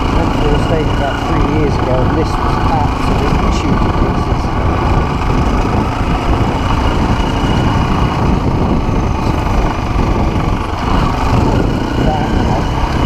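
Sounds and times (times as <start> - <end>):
off-road motorcycle engine: 0.0 - 13.0.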